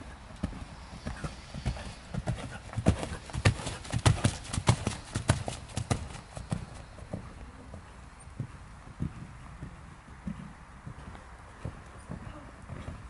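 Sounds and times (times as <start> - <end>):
horse hoofbeats on sand: 0.0 - 13.0.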